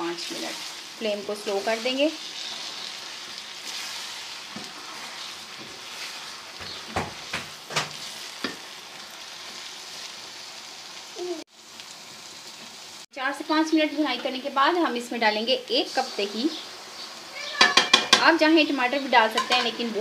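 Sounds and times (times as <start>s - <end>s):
chicken sizzling in oil: 0.0s - 20.0s
spoon scraping and stirring pan: 0.2s - 10.1s, 15.9s - 18.5s, 19.1s - 20.0s.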